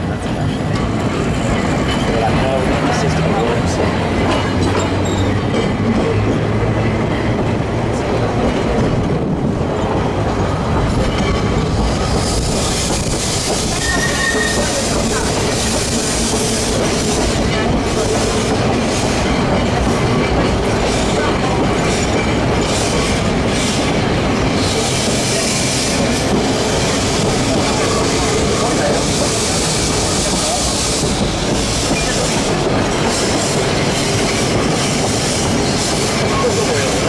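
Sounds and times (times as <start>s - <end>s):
rail joint clicks: 0.0s - 37.0s
tram wheels rumbling on rail: 0.0s - 37.0s
high wheel squeal: 12.1s - 15.2s.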